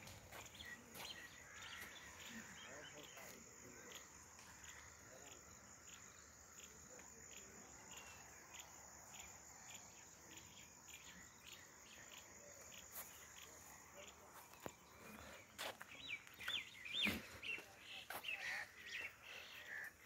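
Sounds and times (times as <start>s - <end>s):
crickets trilling: 0.0s - 20.0s.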